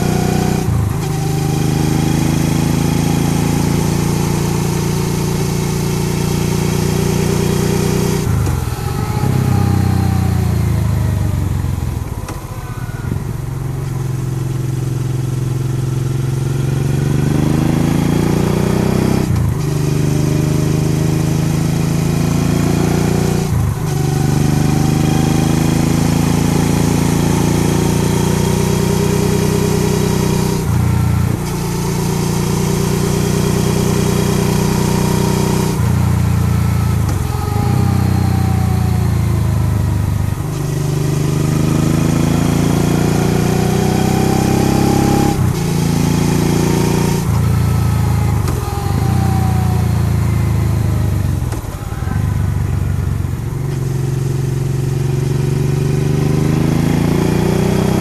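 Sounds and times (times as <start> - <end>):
motorcycle engine running: 0.0 - 58.0
wind rush: 8.3 - 14.3.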